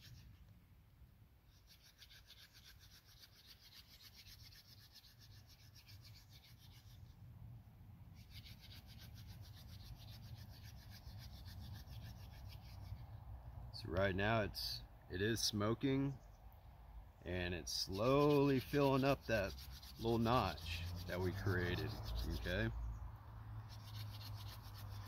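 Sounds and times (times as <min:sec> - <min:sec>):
wood rubbing on wood: 0:08.2 - 0:13.0, 0:17.7 - 0:22.7, 0:23.7 - 0:25.0.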